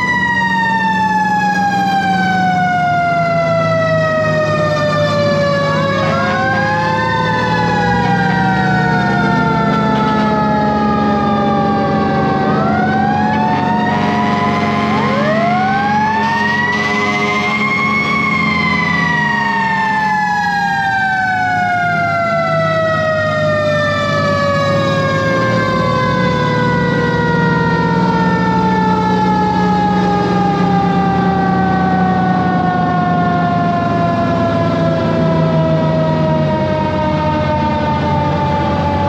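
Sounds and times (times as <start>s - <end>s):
diesel engine running: 0.0s - 39.0s.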